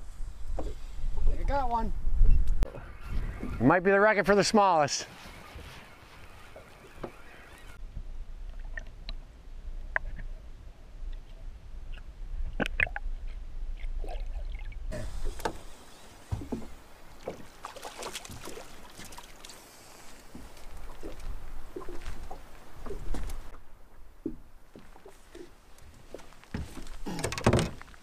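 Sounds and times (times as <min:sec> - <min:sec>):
wind rumbling on microphone: 0:00.0 - 0:03.9, 0:20.1 - 0:24.6
water against hull: 0:04.6 - 0:09.2, 0:12.4 - 0:28.0.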